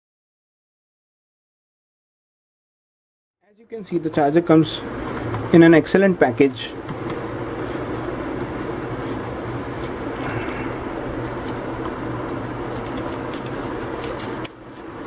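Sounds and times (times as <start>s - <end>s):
steady low hum: 3.6s - 15.0s
cardboard box crinkling: 9.0s - 15.0s.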